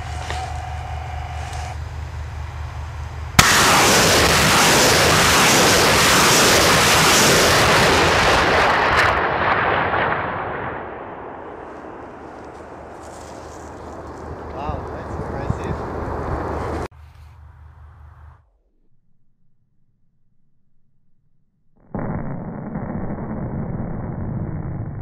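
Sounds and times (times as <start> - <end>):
low steady hum: 0.0 - 3.7
rocket motors blasting: 3.3 - 11.3.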